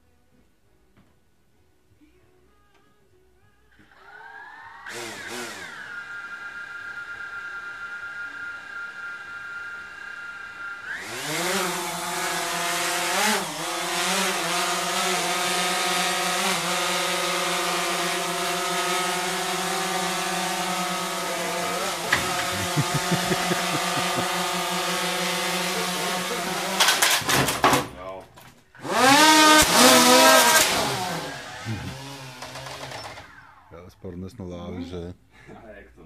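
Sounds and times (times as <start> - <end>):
drone motors buzzing: 4.0 - 27.1, 28.8 - 33.7.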